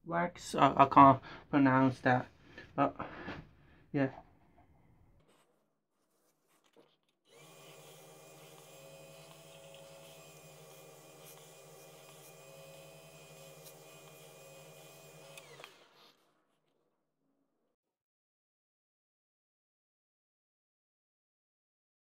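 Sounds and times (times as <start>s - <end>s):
lathe motor humming and whining: 7.3s - 15.9s
cloth buffing spinning wood: 7.3s - 16.0s.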